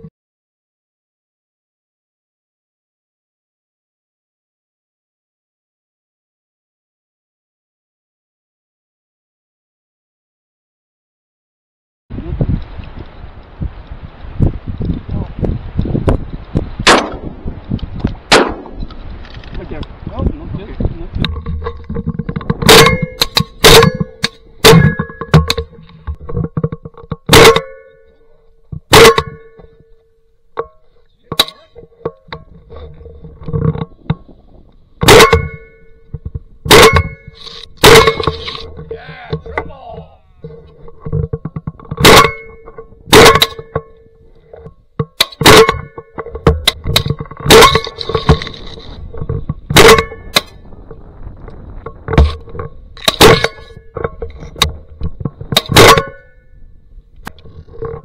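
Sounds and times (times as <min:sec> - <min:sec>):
faint clicks and pops: 0:12.2 - 0:20.0
shotgun blasts: 0:16.8 - 0:17.4, 0:18.3 - 0:18.9, 0:22.6 - 0:25.0.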